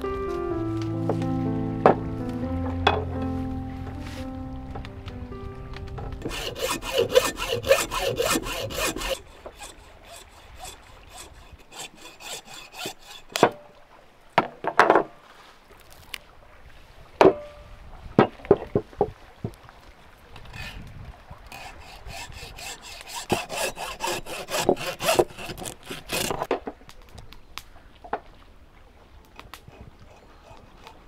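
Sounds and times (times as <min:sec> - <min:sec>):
quick rasping strokes: 0:06.2 - 0:13.4, 0:21.5 - 0:26.5.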